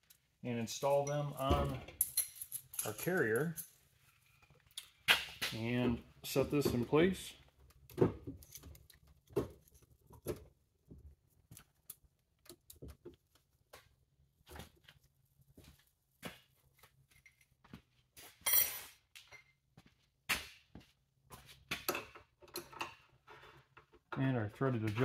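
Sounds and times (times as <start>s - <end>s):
metal parts clattering: 2.0s - 3.8s.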